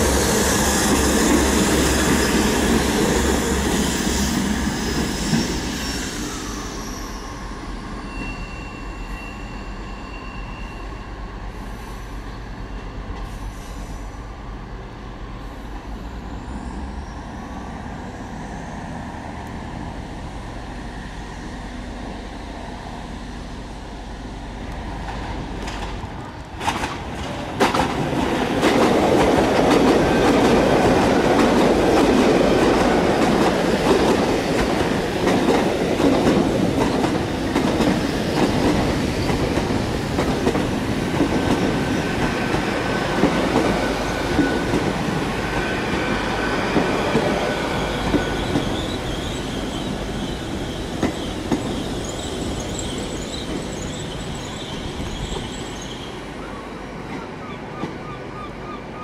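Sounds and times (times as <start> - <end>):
train passing loudly: 0.0 - 59.0
train wheels clacking over rail joints: 25.6 - 44.9.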